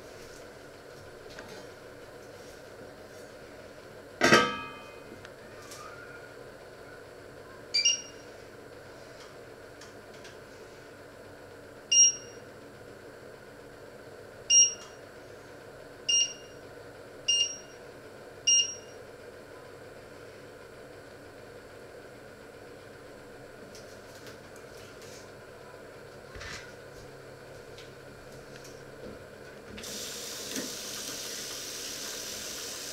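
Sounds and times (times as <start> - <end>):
hob touch control beeps: 7.8 - 8.2, 11.9 - 12.4, 14.5 - 14.9, 16.1 - 16.5, 17.3 - 17.8, 18.5 - 18.9.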